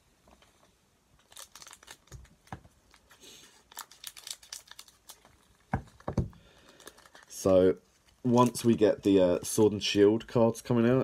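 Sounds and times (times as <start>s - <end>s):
foil wrapper crinkling and tearing: 1.2s - 9.6s.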